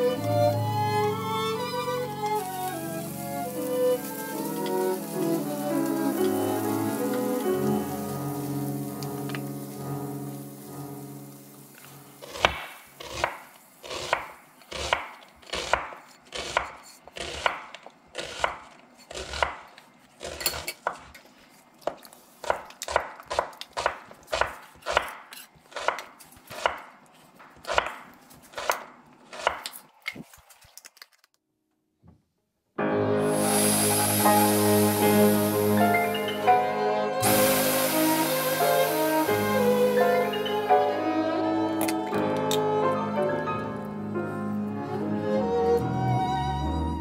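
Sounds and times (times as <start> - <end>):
knife chopping on cutting board: 14.0 - 19.7, 21.8 - 26.9.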